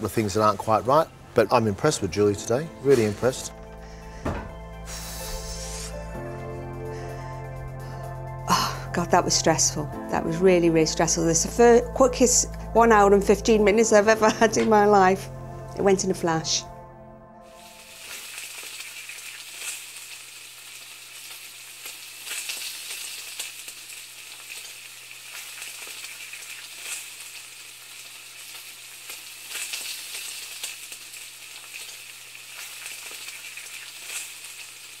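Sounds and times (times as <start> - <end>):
food sizzling in a frying pan: 4.8 - 6.0, 17.5 - 35.0.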